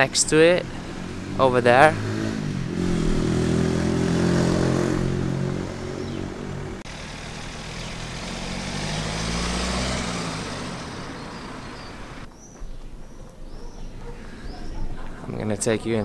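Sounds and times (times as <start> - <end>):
vehicle passing by: 0.0 - 12.3
high bird chirps: 5.8 - 6.6, 7.4 - 8.2, 10.6 - 15.0.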